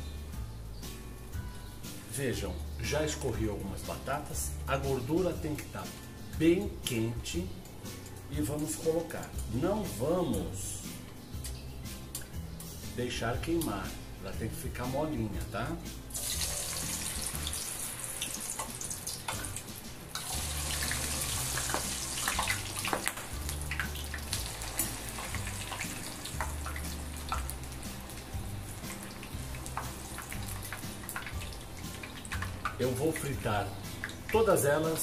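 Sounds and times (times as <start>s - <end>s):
potatoes sizzling in hot fat: 16.1s - 35.0s.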